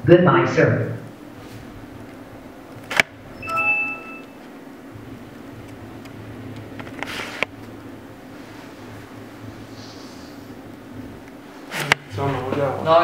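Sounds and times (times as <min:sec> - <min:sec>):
computer shutdown chime: 0:03.4 - 0:04.4.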